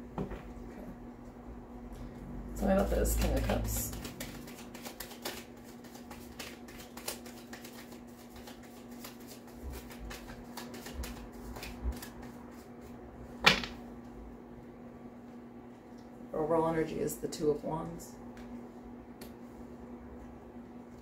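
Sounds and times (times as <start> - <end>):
cards being shuffled: 2.6 - 12.9.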